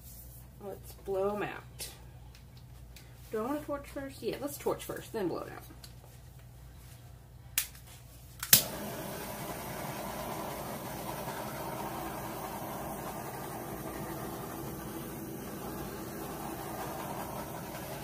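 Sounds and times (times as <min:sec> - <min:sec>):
torch igniter clicks: 0:08.4 - 0:08.8
torch flame hissing: 0:08.6 - 0:18.0.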